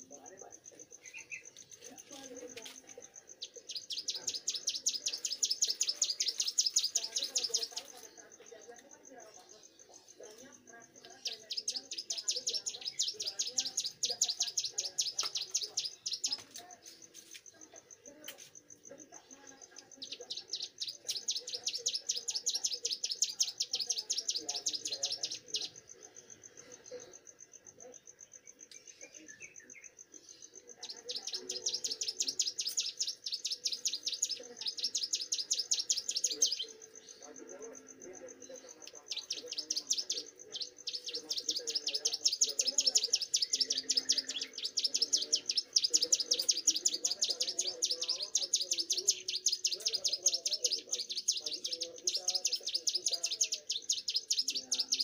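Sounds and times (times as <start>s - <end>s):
bird singing rapid high notes: 3.4s - 8.0s, 30.8s - 37.2s, 38.9s - 55.0s.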